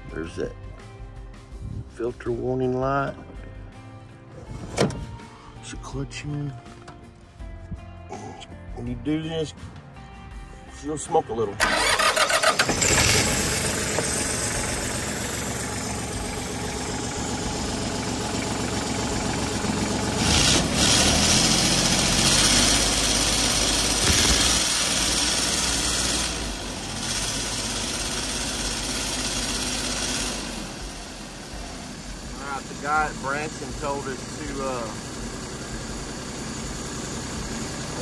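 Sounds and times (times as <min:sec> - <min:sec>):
diesel tractor engine running: 0:11.6 - 0:38.0.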